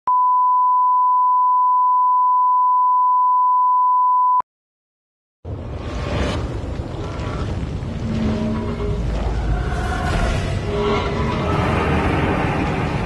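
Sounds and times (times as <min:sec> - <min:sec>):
steady test tone beep: 0:00.1 - 0:04.4
low noisy rumble: 0:05.5 - 0:13.0.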